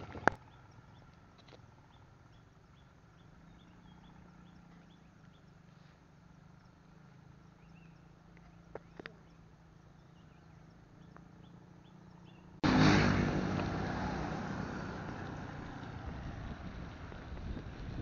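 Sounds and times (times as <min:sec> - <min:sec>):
wind and road noise: 0:00.0 - 0:18.0
faint chirps: 0:00.4 - 0:12.6
motorbike engine passing: 0:02.3 - 0:18.0.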